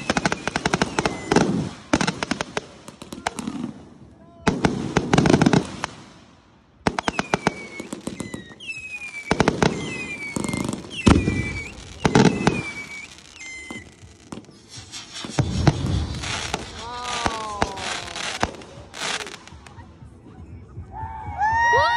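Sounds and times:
firework whistles: 0.0s - 2.6s, 6.9s - 19.7s
firework crackling: 0.0s - 3.9s, 4.5s - 20.0s
firework bangs: 0.0s - 19.8s.

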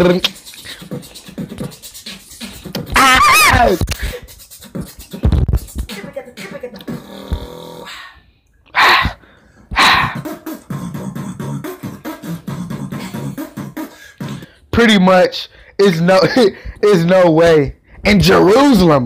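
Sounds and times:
beatboxing: 0.0s - 8.2s, 8.8s - 14.7s.

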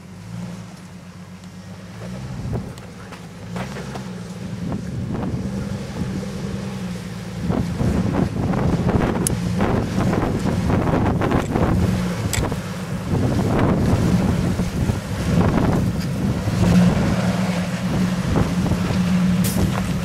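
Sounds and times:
engine running at low revs: 0.0s - 20.0s
wind buffeting microphone: 4.5s - 20.0s.

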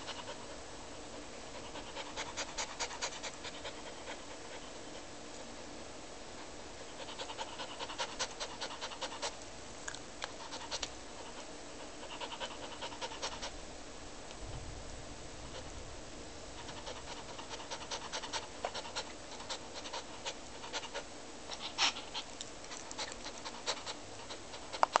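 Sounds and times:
dog panting heavily: 0.0s - 0.6s, 1.2s - 5.5s, 6.3s - 9.4s, 10.3s - 13.6s, 16.6s - 25.0s.

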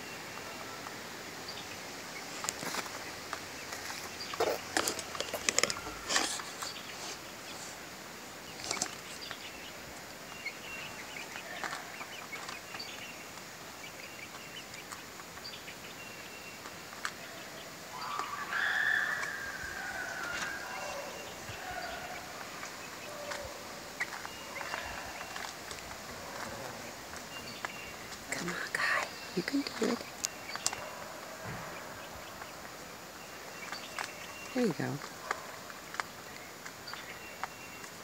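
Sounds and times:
chicks peeping: 0.2s - 38.0s
loud chicken call: 17.9s - 27.0s.

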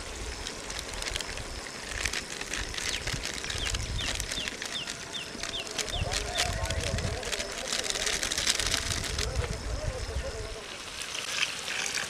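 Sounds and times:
wood fire crackling: 0.0s - 9.6s.

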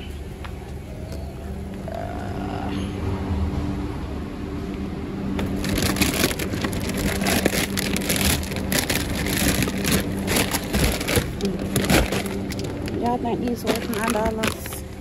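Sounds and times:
steady low hum: 0.0s - 15.0s
plastic bag crinkling: 5.4s - 15.0s.

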